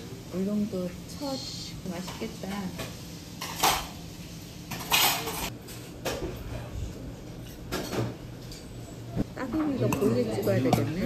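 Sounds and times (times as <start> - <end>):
dishes and cutlery clattering: 3.4 - 4.0, 4.7 - 6.6, 7.4 - 8.7.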